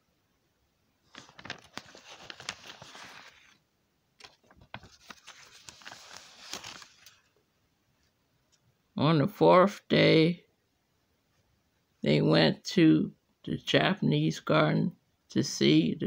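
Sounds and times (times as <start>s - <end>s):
paper pages turning: 1.0s - 3.6s, 4.2s - 7.4s.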